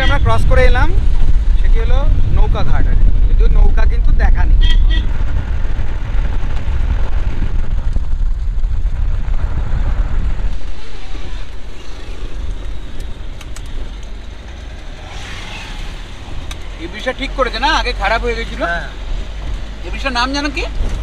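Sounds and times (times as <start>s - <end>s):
car engine and tyre rumble: 0.0s - 21.0s.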